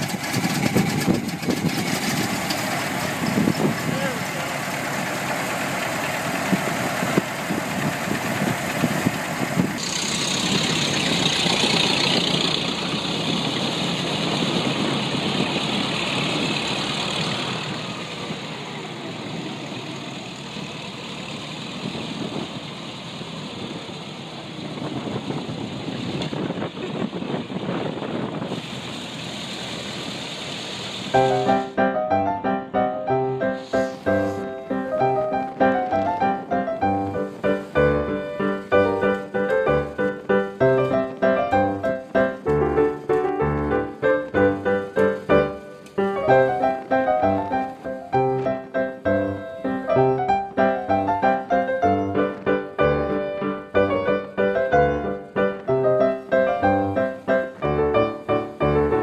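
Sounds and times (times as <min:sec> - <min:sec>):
old car engine running: 0:00.0 - 0:31.8, 0:33.4 - 0:59.0
road and wind noise: 0:00.0 - 0:59.0
piano music: 0:31.1 - 0:59.0.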